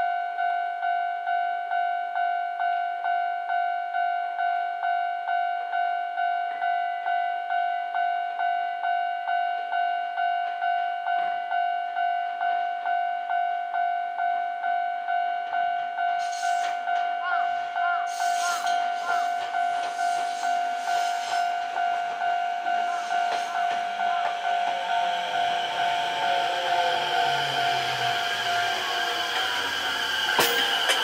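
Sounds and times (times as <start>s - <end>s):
level crossing bell ringing: 14.8s - 29.8s
train hiss: 16.2s - 31.0s.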